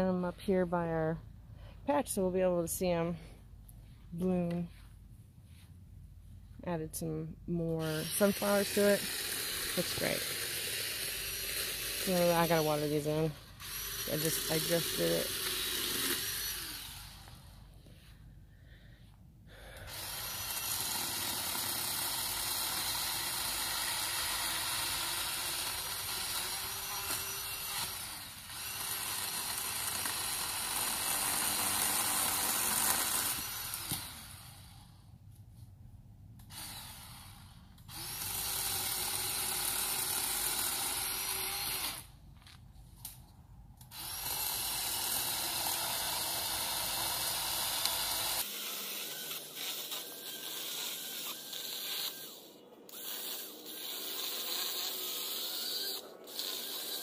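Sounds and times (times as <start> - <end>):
electric pole saw cutting branches: 7.7 - 17.8, 19.6 - 35.0, 36.4 - 42.2, 43.8 - 57.0.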